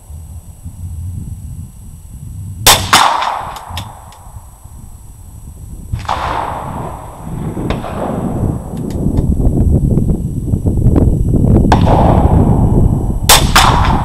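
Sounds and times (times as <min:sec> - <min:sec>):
rifle shots with echo: 0:02.7 - 0:04.1, 0:06.0 - 0:08.8, 0:11.7 - 0:12.5, 0:13.3 - 0:14.0.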